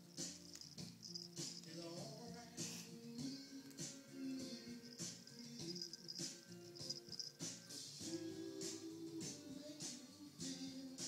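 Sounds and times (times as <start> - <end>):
background music with low notes: 0.0 - 11.0.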